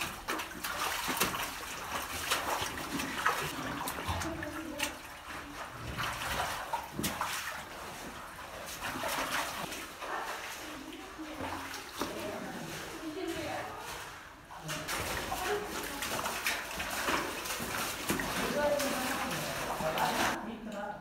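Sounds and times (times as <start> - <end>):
splashing steps in water: 0.0 - 20.4.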